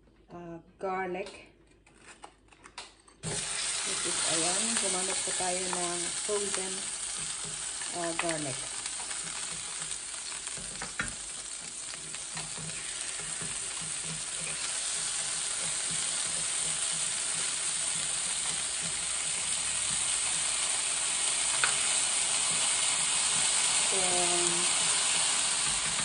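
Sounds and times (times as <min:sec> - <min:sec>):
garlic sizzling in hot oil: 0:03.2 - 0:26.0
wooden spoon stirring: 0:07.1 - 0:20.5.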